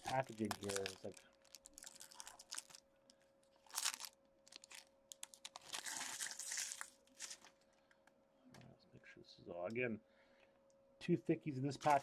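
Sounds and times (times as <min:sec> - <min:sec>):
foil wrapper crinkling and tearing: 0:00.0 - 0:02.8, 0:03.5 - 0:07.6.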